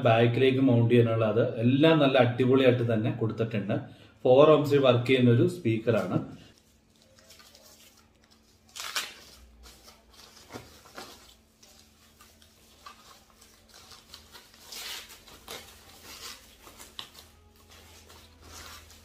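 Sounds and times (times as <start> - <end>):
plastic wrapper crinkling: 6.0 - 19.0.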